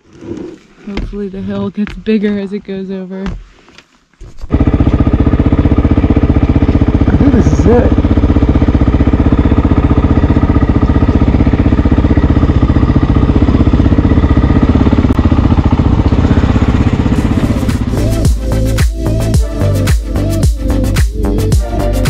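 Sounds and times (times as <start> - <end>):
motorcycle engine running: 4.3 - 22.0
music: 17.2 - 22.0.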